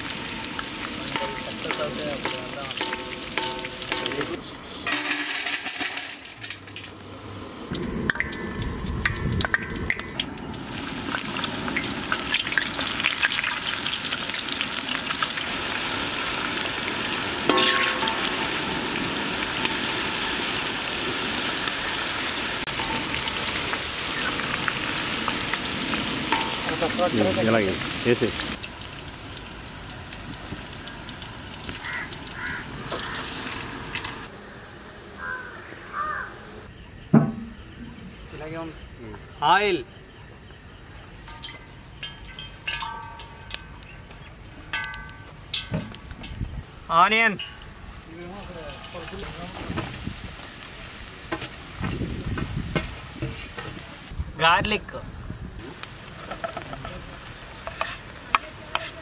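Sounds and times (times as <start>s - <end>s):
corn sizzling in hot oil: 0.0s - 34.3s, 41.1s - 59.0s
metal skimmer scraping and clinking: 1.1s - 7.0s, 17.5s - 18.7s, 41.3s - 43.6s.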